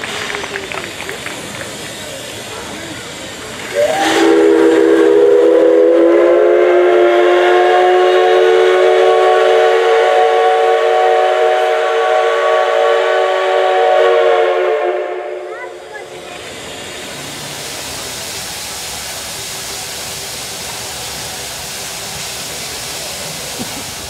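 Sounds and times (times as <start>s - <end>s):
steam locomotive whistle blowing: 3.6s - 15.7s.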